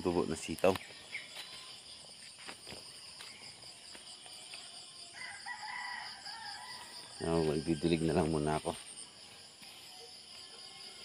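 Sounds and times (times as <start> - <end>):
insect trilling: 0.0 - 11.0
rooster crowing: 5.1 - 7.9.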